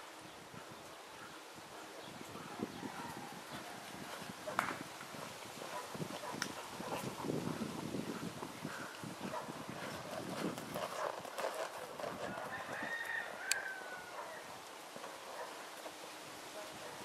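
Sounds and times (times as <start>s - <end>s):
horse hoofbeats on sand: 2.4s - 13.3s
rooster crowing: 12.2s - 14.5s.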